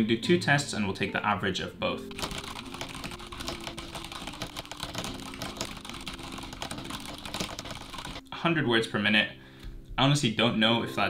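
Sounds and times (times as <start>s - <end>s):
fast typing on mechanical keyboard: 2.1s - 8.2s.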